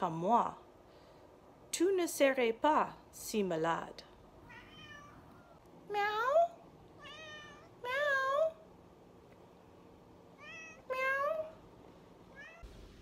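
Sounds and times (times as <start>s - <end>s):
cat meowing: 4.4s - 5.6s, 7.0s - 7.8s, 10.4s - 11.6s, 12.3s - 12.6s.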